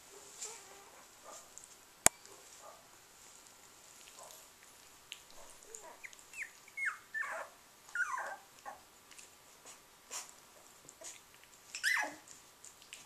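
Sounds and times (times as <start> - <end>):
puppies squeaking and whimpering: 5.8 - 8.8, 11.0 - 12.2.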